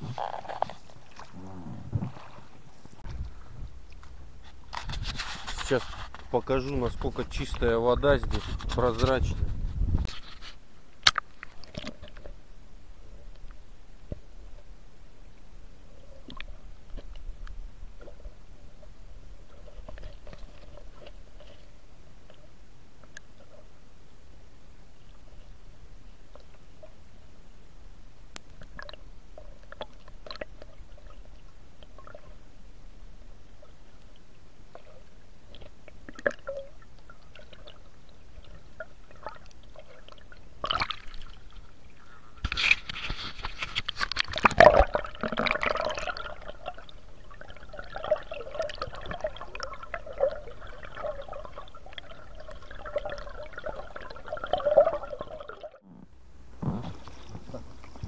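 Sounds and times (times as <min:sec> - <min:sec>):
underwater water gurgling: 0:00.0 - 0:04.7, 0:28.6 - 0:42.2, 0:44.0 - 0:56.0
water sloshing and bubbling: 0:00.0 - 0:23.8, 0:28.3 - 0:58.0.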